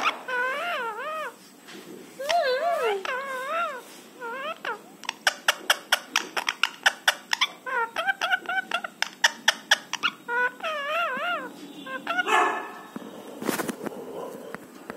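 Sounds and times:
parakeet chirping: 0:00.0 - 0:01.4, 0:02.2 - 0:13.3
parakeet wavering whining calls: 0:00.0 - 0:01.4, 0:02.2 - 0:13.0.

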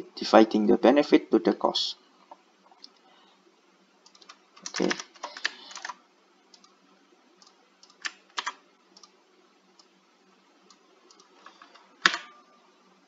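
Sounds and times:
keyboard and mouse clicks: 0:04.0 - 0:06.8, 0:07.4 - 0:09.2, 0:11.1 - 0:12.4.

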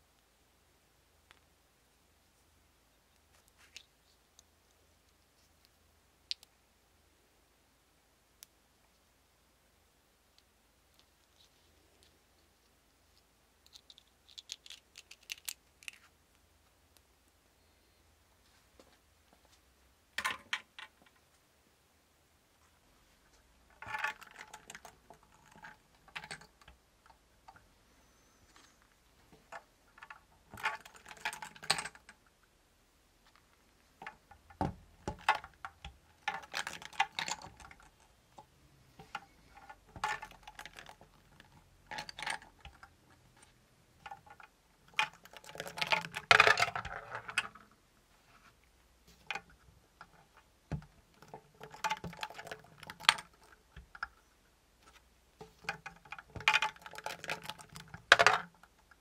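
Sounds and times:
balls clattering on metal: 0:44.0 - 0:47.6, 0:55.4 - 0:58.6
balls dropping into brass cups: 0:44.0 - 0:47.6, 0:55.4 - 0:58.6.

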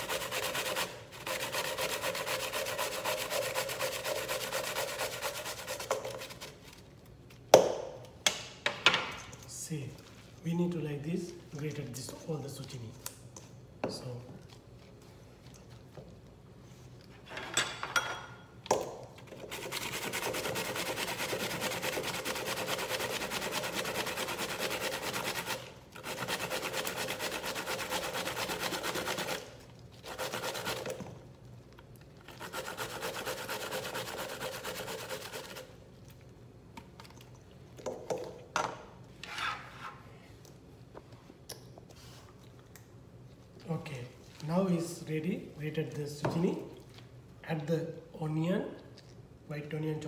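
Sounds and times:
zucchini rasping on a grater: 0:00.0 - 0:06.6, 0:19.4 - 0:31.0, 0:32.2 - 0:35.8.

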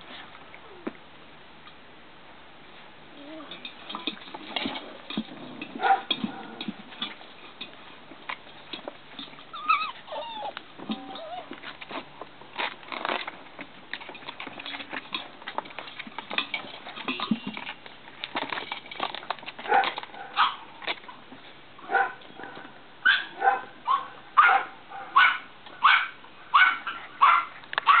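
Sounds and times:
puppies whining and yapping: 0:09.2 - 0:12.0.

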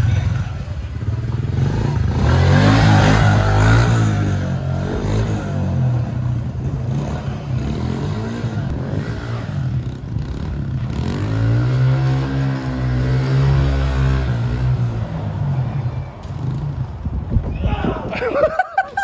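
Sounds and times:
motocross bike engine revving: 0:00.0 - 0:15.0.

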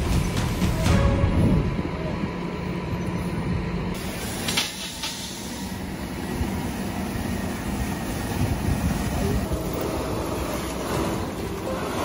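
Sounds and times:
short air hiss: 0:04.0 - 0:05.8.

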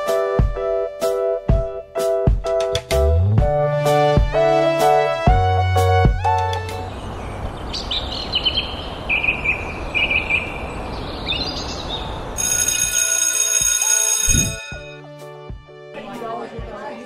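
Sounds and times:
birds chirping: 0:06.8 - 0:12.4
school bell ringing: 0:12.4 - 0:15.1.

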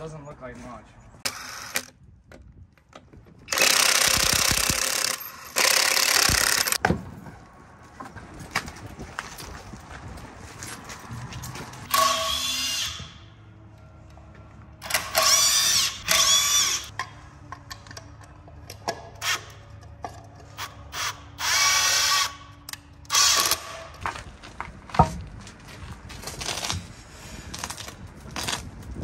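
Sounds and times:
power tool whirring: 0:01.2 - 0:02.0, 0:03.5 - 0:06.8, 0:11.9 - 0:13.3, 0:14.8 - 0:17.0, 0:20.5 - 0:23.9.

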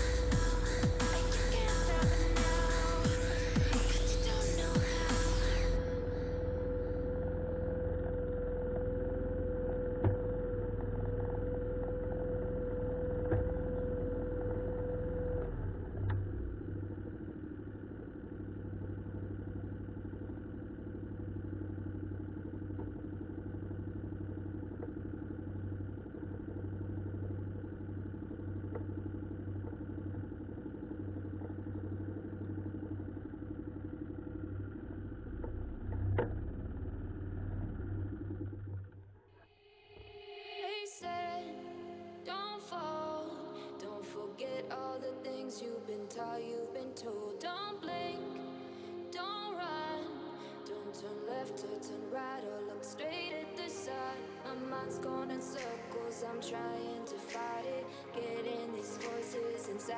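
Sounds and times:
boat motor running: 0:00.0 - 0:39.2.

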